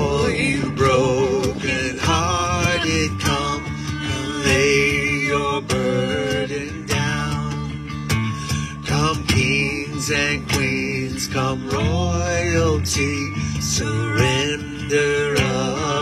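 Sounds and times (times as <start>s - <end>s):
person singing: 0.0s - 7.8s
strummed guitars: 0.0s - 16.0s.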